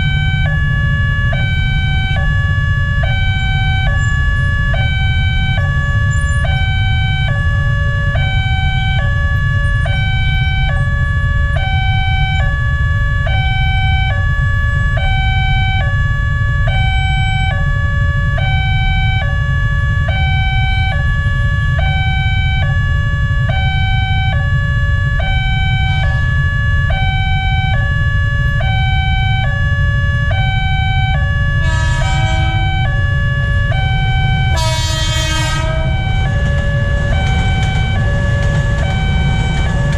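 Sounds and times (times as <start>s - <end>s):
low rumble of traffic: 0.0s - 39.9s
train horn blasts: 31.1s - 39.9s.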